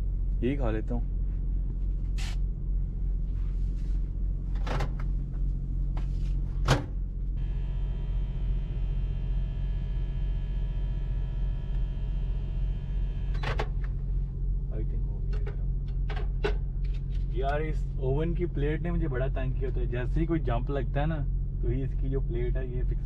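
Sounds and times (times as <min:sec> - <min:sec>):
truck engine drone: 0:00.0 - 0:23.0
microwave oven humming: 0:04.1 - 0:14.8.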